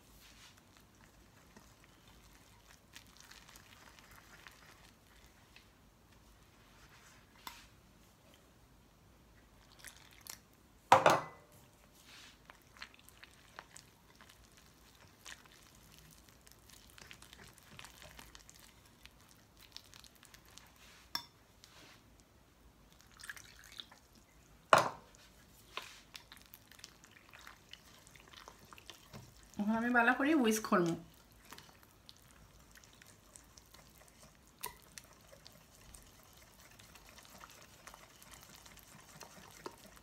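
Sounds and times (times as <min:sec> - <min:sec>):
whisk scraping glass bowl: 0:33.4 - 0:40.0.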